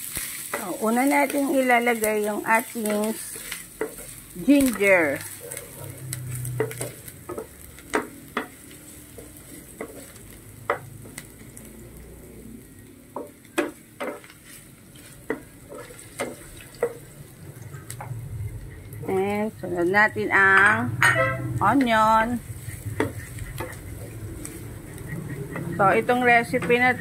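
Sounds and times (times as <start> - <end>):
ginger sizzling in oil: 0.0 - 27.0
wooden spatula scraping pan: 0.2 - 11.2, 13.6 - 17.0, 21.0 - 27.0.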